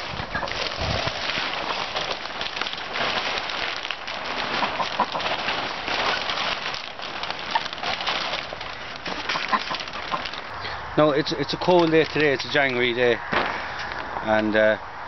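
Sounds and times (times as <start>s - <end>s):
plastic sheeting rustling: 0.0s - 14.1s.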